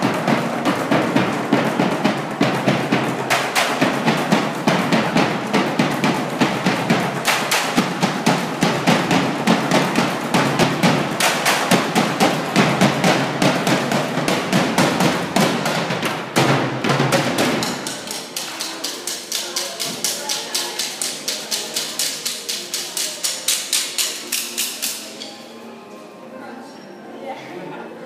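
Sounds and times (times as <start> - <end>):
loud accented drum hit: 0.0 - 18.4
percussion ensemble stick strikes: 0.0 - 25.5.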